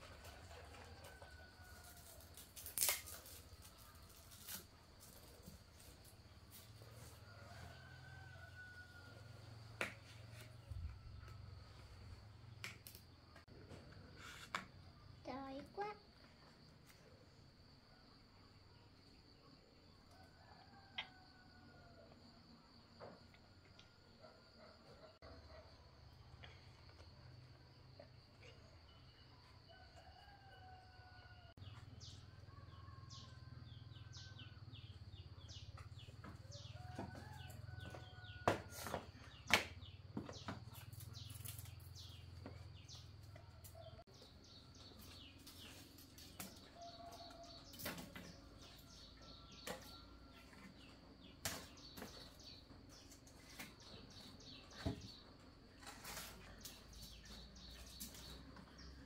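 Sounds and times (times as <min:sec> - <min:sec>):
dry sticks clacking: 0:02.6 - 0:03.4.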